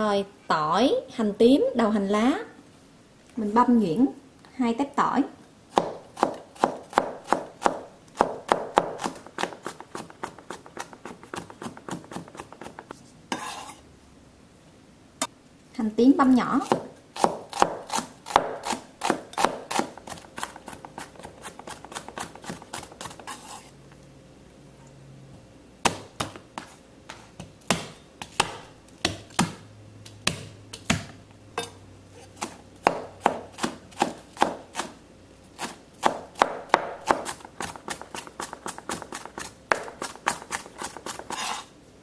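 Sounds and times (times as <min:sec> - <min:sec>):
knife chopping on cutting board: 0:05.7 - 0:13.8, 0:16.6 - 0:23.7, 0:25.8 - 0:29.6, 0:30.2 - 0:35.0, 0:35.6 - 0:41.7.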